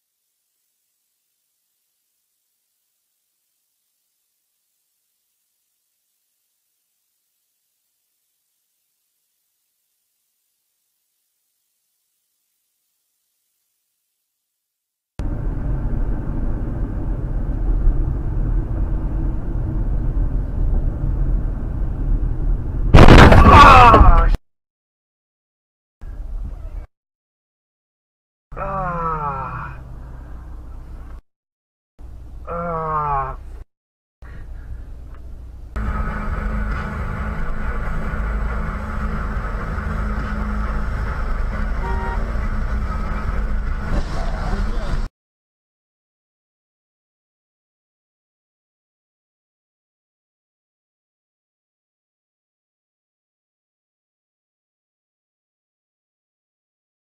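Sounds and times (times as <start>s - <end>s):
car road and engine noise: 15.2s - 23.2s, 29.8s - 31.2s, 34.3s - 45.1s.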